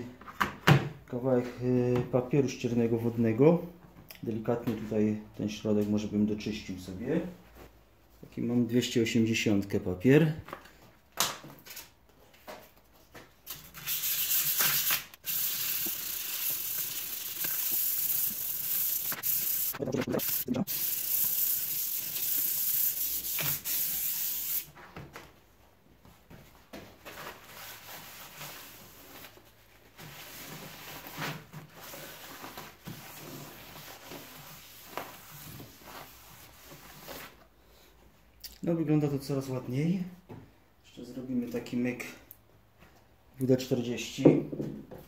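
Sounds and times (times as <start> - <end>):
sandpaper scratching on steel: 13.8 - 24.7.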